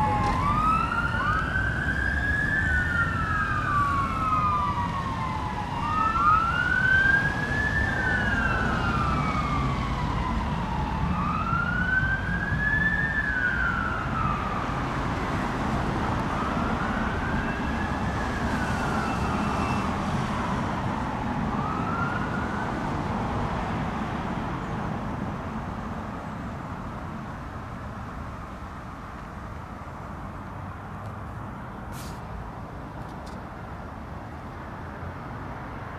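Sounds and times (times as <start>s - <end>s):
fire engine siren wailing: 0.0s - 23.9s
low road and engine noise: 0.0s - 35.9s.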